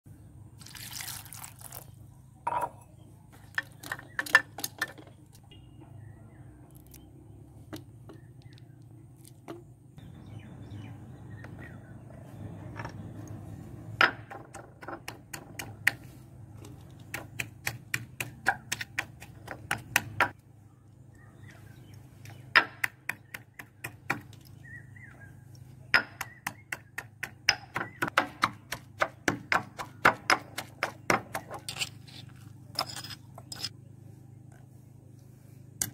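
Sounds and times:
water poured into a pan: 0:00.6 - 0:01.8
stone pestle pounding in mortar: 0:17.1 - 0:20.3, 0:26.0 - 0:31.6.

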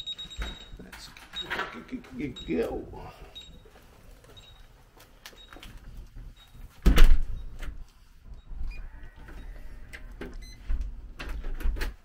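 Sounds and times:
door slamming shut: 0:06.8 - 0:07.3.

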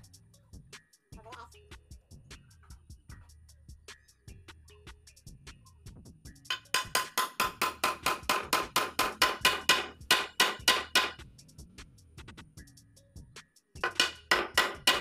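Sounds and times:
hammer driving nails into wood: 0:06.5 - 0:11.2, 0:13.8 - 0:15.0.

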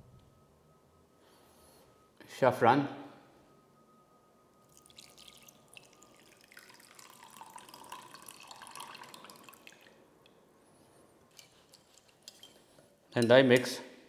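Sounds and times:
water trickling into glass bowl: 0:04.6 - 0:10.4.

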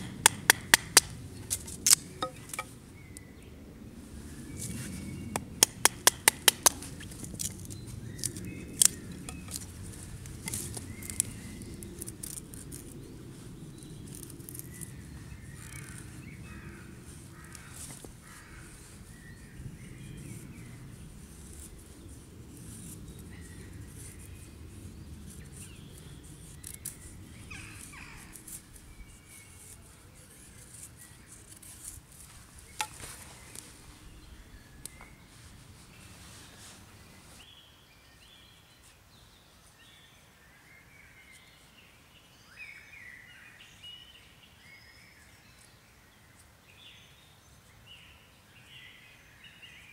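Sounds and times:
knife clicks on wood: 0:05.4 - 0:06.8.

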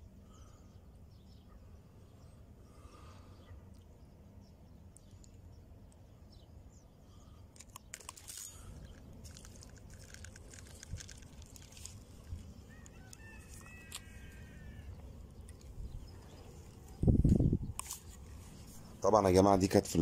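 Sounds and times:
wind and handling rumble: 0:07.3 - 0:20.0
clicks and crackles: 0:07.5 - 0:14.2, 0:17.7 - 0:18.2.

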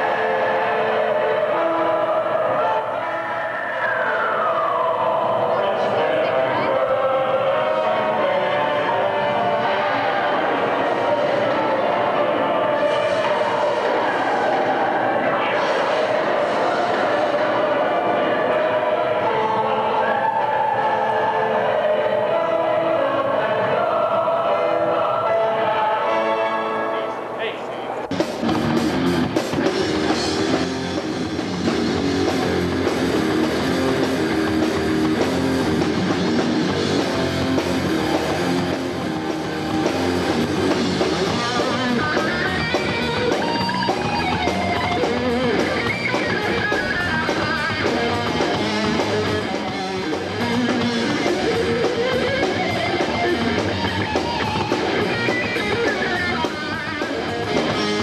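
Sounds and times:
hard rock band playing: 0:28.1 - 0:58.0
wavering lead guitar line: 0:28.1 - 0:58.0.

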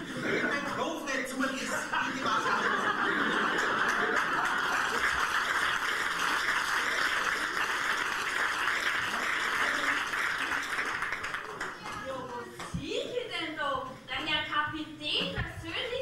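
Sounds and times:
audience laughing: 0:00.0 - 0:05.6
audience applauding: 0:02.8 - 0:12.4.

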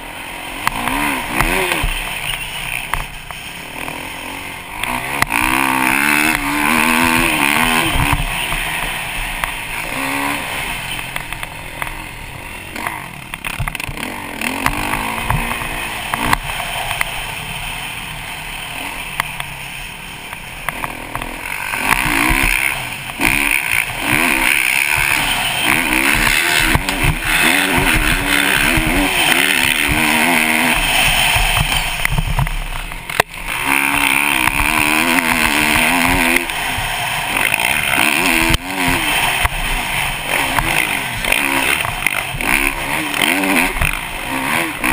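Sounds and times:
dirt bike engine revving: 0:00.0 - 0:44.9.

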